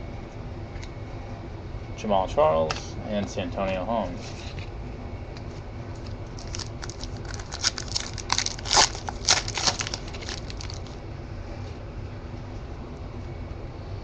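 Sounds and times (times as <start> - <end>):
foil wrapper crinkling: 5.9 - 11.0.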